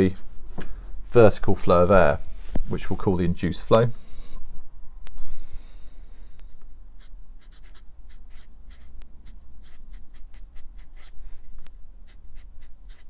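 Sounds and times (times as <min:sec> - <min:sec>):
marker pen scratchy strokes: 0:06.4 - 0:13.0.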